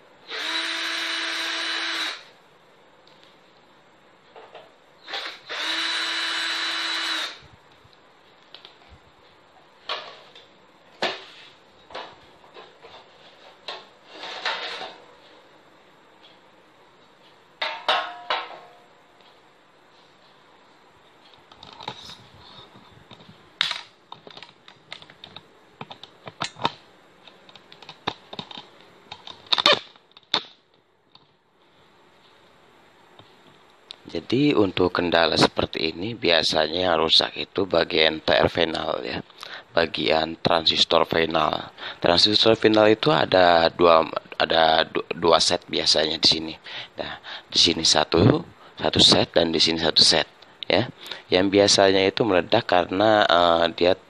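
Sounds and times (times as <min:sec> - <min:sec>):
power drill-driver whirring: 0:00.3 - 0:02.3, 0:05.0 - 0:07.4.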